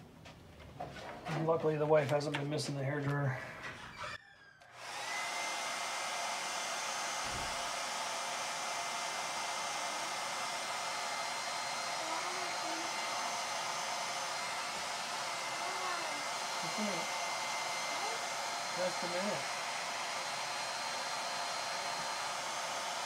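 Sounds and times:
hair dryer running: 4.6s - 23.0s.

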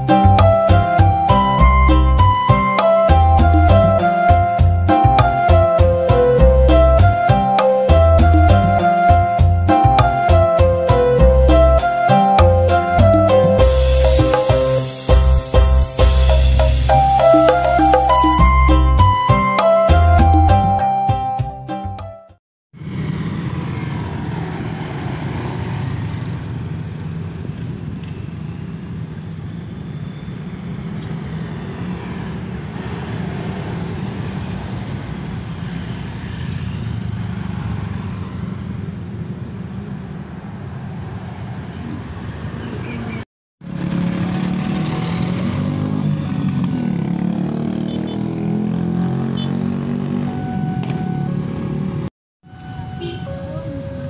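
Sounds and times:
road traffic passing: 0.0s - 22.1s, 22.8s - 54.0s
motorcycles driving by: 22.8s - 52.1s.

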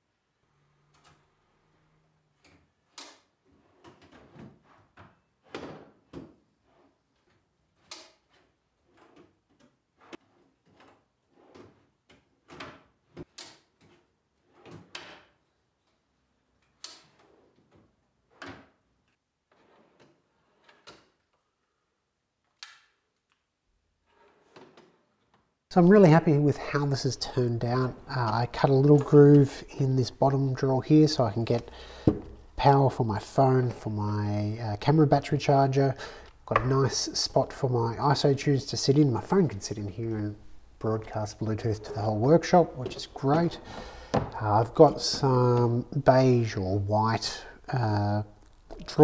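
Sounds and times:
drawers sliding on metal slides: 0.7s - 15.0s
drawer knocking shut: 42.8s - 44.4s.

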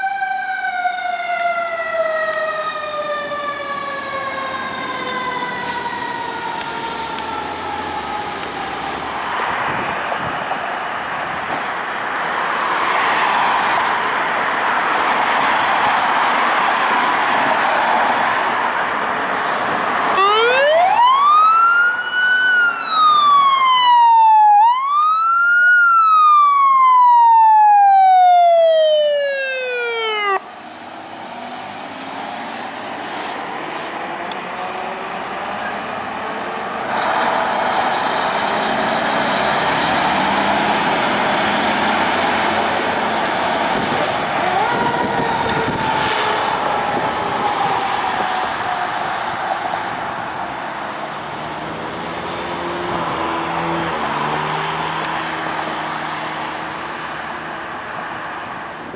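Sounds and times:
diesel emergency vehicles running: 0.0s - 58.9s
electronic siren wailing: 20.2s - 30.5s, 44.3s - 49.4s
heavy truck engine passing: 26.6s - 57.4s.

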